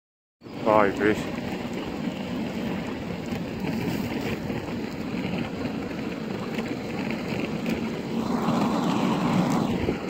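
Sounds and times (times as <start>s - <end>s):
skate wheels rolling over asphalt: 0.6s - 10.0s.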